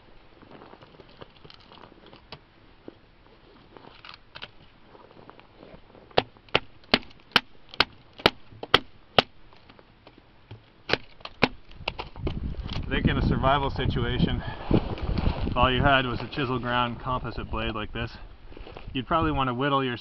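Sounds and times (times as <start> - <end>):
faint handling and rustling: 0.0 - 6.5
wood splitting: 6.1 - 9.8, 10.4 - 12.8.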